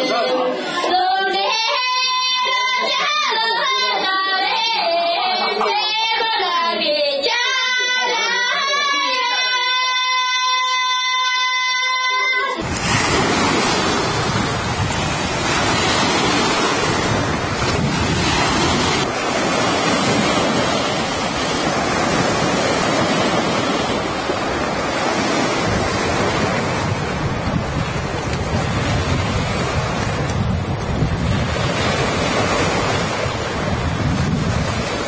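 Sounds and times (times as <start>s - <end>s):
wind blowing over microphone: 12.6s - 35.0s.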